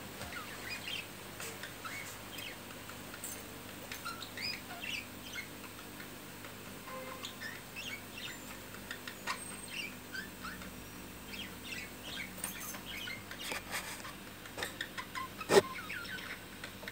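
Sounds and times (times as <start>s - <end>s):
budgerigar chirping: 1.7s - 2.6s, 4.0s - 5.5s, 7.0s - 13.4s, 14.8s - 16.4s.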